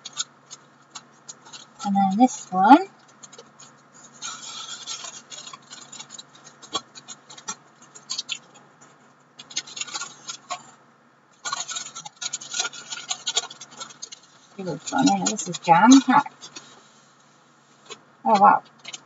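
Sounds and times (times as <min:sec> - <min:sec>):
paper bag rustling: 0:11.4 - 0:18.0.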